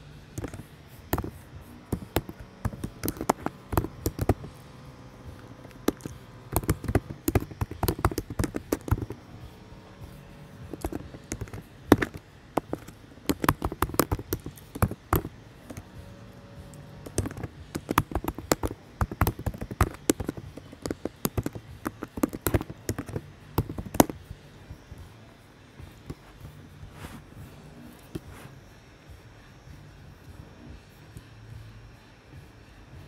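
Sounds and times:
computer keyboard typing: 0.4 - 9.6, 10.6 - 15.8, 16.7 - 24.2.

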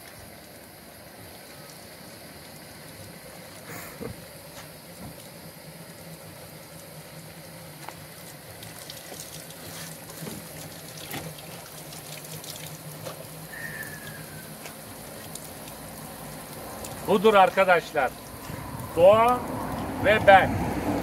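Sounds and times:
water running into stone trough: 0.0 - 21.0
small splashes and knocks: 7.7 - 13.4, 14.0 - 19.9.

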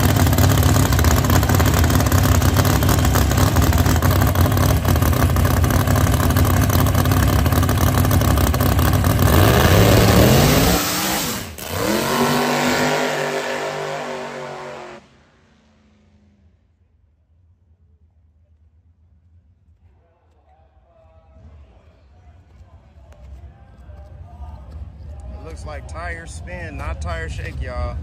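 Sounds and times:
race car engine revving: 0.0 - 16.6.

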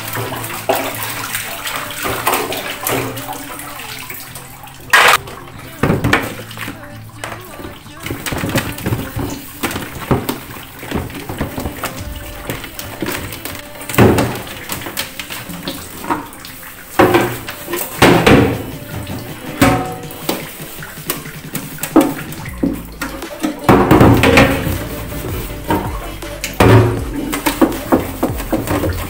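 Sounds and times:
background music: 0.0 - 29.0
water running and splashing: 0.0 - 29.0
items knocking and clattering: 4.9 - 29.0.

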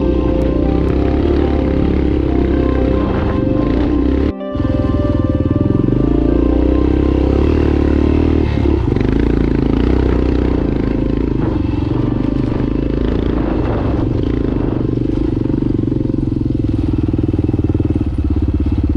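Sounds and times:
motorcycle engine running: 0.0 - 18.9.

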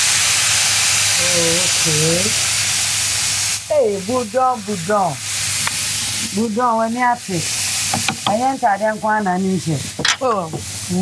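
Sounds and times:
fish sizzling in hot oil: 0.0 - 11.0
woman speaking: 1.2 - 2.4, 3.7 - 5.2, 6.2 - 7.5, 8.1 - 11.0.

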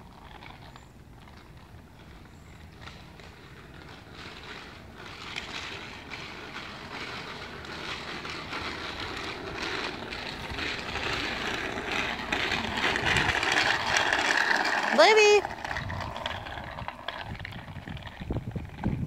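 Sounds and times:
bicycle rolling on wet asphalt: 0.0 - 19.0.

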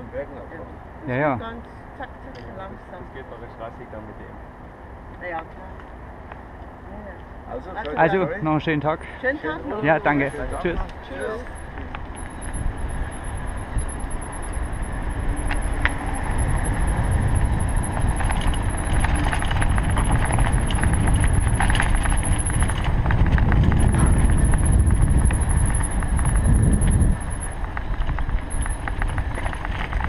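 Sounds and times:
bicycle tyres rumbling on asphalt: 10.2 - 30.0
wind buffeting microphone: 10.2 - 30.0
clicks and rattles from bumps: 17.9 - 30.0.

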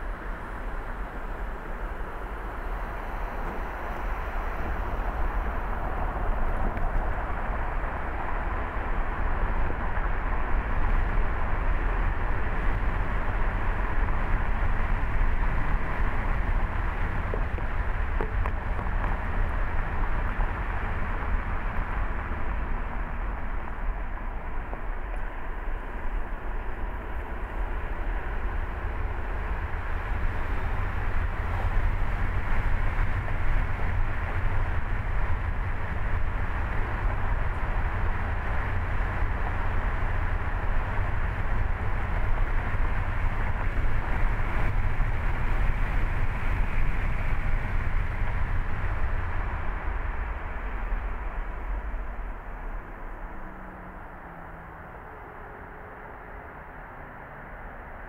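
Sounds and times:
car driving road noise: 0.0 - 58.0.

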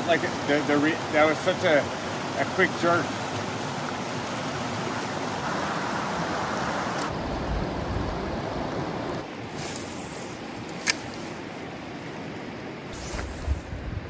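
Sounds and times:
river rapid rushing water: 0.0 - 13.0
sharp click: 10.7 - 11.1.

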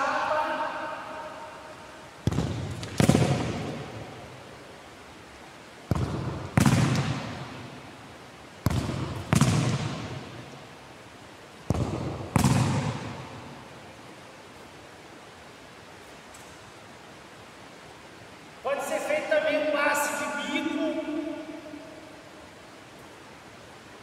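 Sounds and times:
ball kick thud: 2.3 - 3.8, 5.9 - 7.4, 8.6 - 10.2, 11.7 - 13.2.

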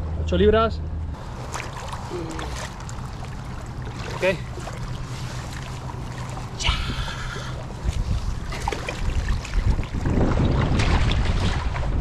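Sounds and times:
water sloshing and splashing: 1.2 - 12.0
wind buffeting microphone: 2.8 - 12.0.

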